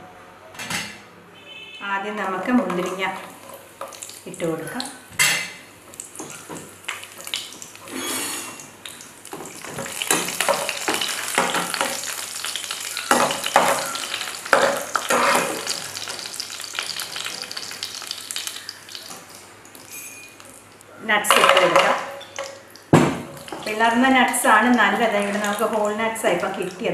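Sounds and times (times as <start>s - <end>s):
raisins sizzling in hot fat: 2.5s - 5.1s, 5.7s - 26.9s
spatula scraping a pan: 7.9s - 8.6s, 13.4s - 15.8s.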